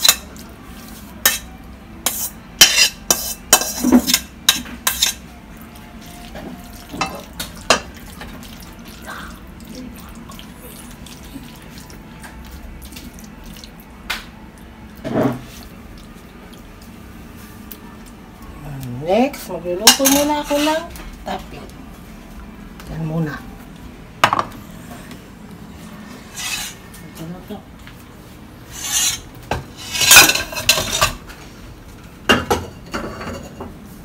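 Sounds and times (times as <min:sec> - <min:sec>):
metal spoon clinking on pans: 0:01.2 - 0:05.2, 0:19.8 - 0:20.8.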